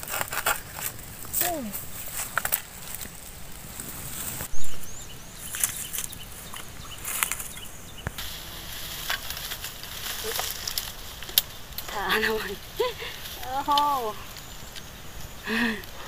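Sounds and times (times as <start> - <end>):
metal tool scraping in soil: 0.0 - 4.5, 5.4 - 14.8
high bird chirps: 4.4 - 8.2.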